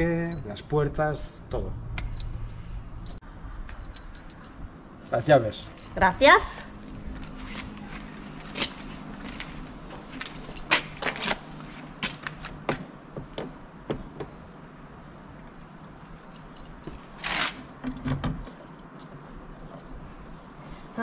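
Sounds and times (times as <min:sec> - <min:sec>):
keys jangling against door lock: 0:02.0 - 0:04.7, 0:05.6 - 0:06.0, 0:08.6 - 0:11.0, 0:16.1 - 0:20.5.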